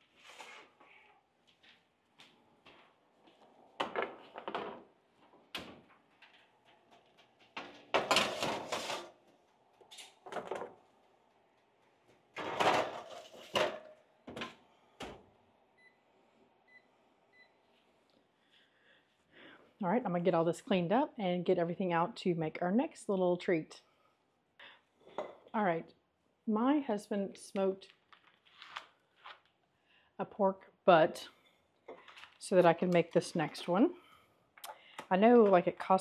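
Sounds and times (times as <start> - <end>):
metal pans clattering on racks: 12.4 - 13.9.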